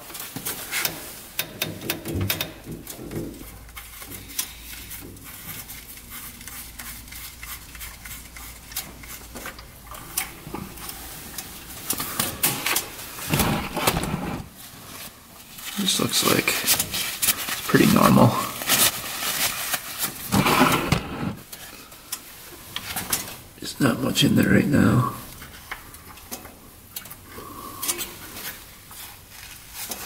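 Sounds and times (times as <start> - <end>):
rag rustling: 2.6 - 23.5.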